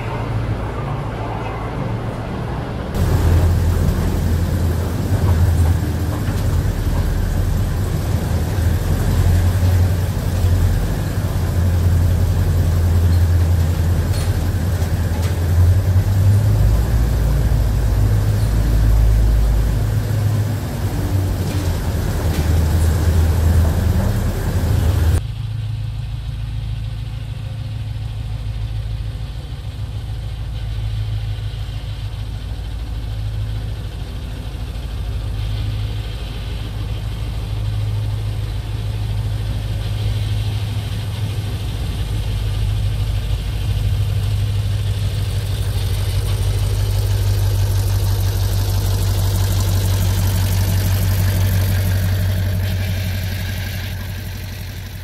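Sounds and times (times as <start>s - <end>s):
diesel locomotive engine humming: 0.0s - 55.0s.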